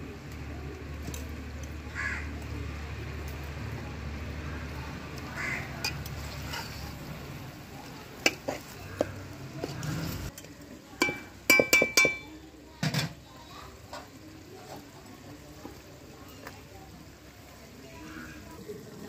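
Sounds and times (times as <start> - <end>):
ladle scraping through gravy: 5.4 - 10.3
metallic clinks of ladle on pot: 11.0 - 12.4.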